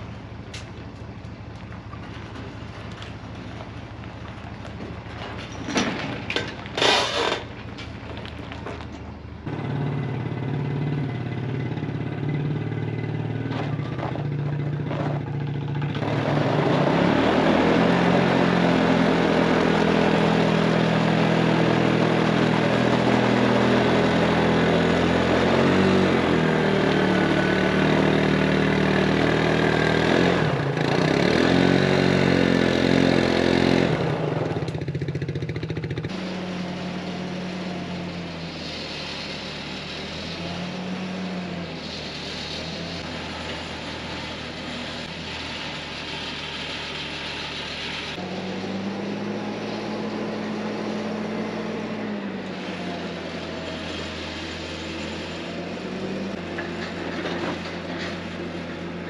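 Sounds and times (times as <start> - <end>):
atv engine running under load: 1.2 - 39.2
engine pitch rising and falling: 9.4 - 45.6.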